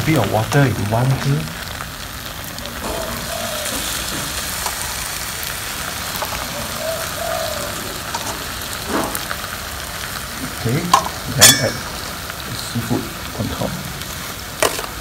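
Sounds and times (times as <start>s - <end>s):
water sizzling in hot pot: 0.0s - 15.0s.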